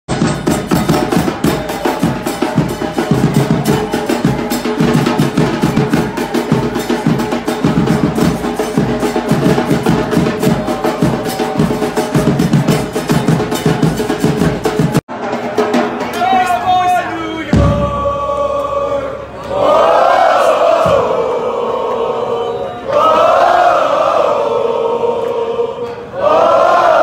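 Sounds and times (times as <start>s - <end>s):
drums beating fast rhythm: 0.1s - 19.0s.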